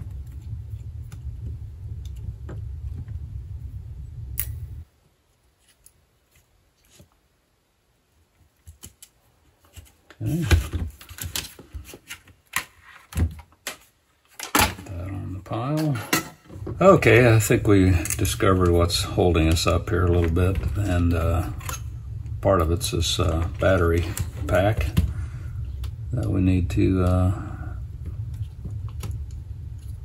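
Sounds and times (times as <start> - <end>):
low steady rumble: 0.0 - 5.2, 16.6 - 30.0.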